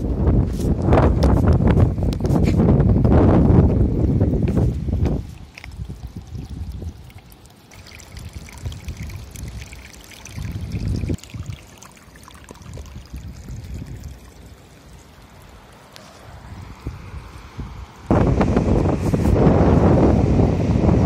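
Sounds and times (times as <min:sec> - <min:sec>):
wind buffeting microphone: 0:00.0 - 0:14.4, 0:16.2 - 0:21.0
water trickling over rock: 0:04.2 - 0:18.1.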